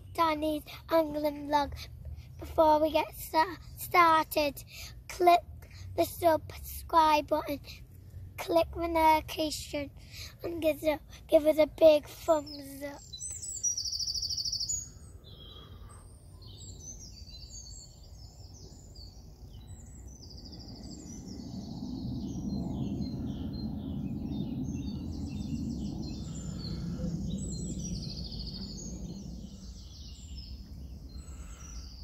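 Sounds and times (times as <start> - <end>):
small birds singing and chirping: 11.7 - 32.0
low outdoor rumble: 19.9 - 31.8.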